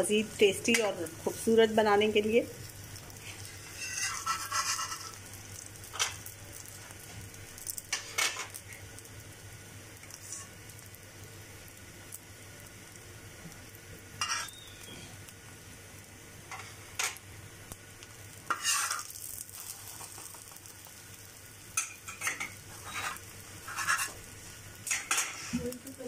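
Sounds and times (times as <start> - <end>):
faint oil sizzling: 0.0 - 26.0
utensil scraping iron pan: 3.4 - 5.2, 18.5 - 19.1, 22.1 - 24.2.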